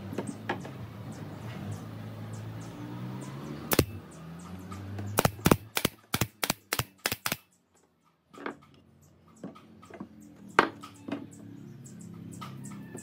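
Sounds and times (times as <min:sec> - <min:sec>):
nail gun shots: 0:03.6 - 0:04.0, 0:05.1 - 0:07.5.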